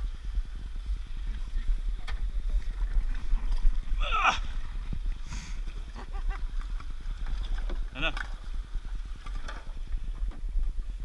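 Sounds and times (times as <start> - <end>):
wind and water rumble: 0.0 - 11.0
person calling out: 4.0 - 4.5.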